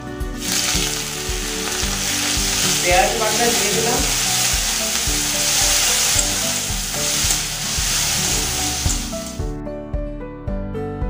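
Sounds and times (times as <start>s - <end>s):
onion paste sizzling in oil: 0.4s - 9.5s
metal spatula stirring: 2.1s - 9.4s.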